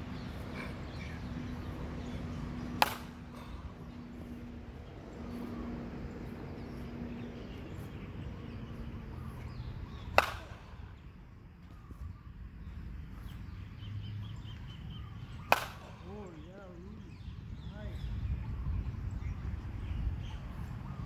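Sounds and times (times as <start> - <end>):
metal bat striking ball: 2.8 - 3.2, 10.1 - 10.7, 15.5 - 15.9.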